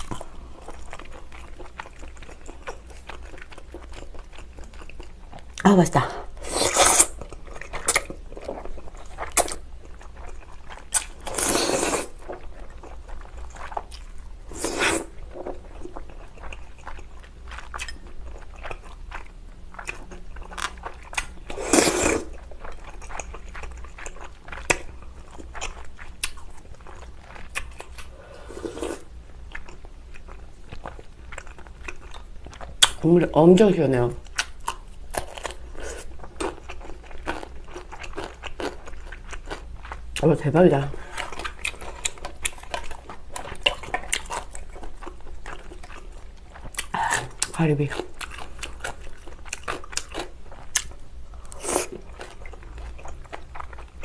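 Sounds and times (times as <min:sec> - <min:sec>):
wet chewing and lip-smacking: 0:00.0 - 0:05.6, 0:06.7 - 0:11.4, 0:15.1 - 0:28.1, 0:29.5 - 0:33.0, 0:34.2 - 0:54.0
person slurping noodles: 0:06.4 - 0:07.2, 0:11.3 - 0:12.2, 0:14.5 - 0:15.1, 0:21.5 - 0:22.3, 0:28.1 - 0:29.1.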